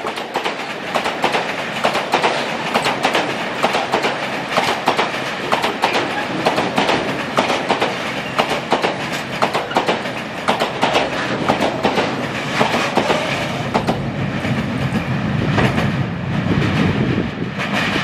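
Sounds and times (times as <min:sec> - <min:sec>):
freight train wheels clacking: 0:00.0 - 0:18.0
low train rumble: 0:00.0 - 0:18.0.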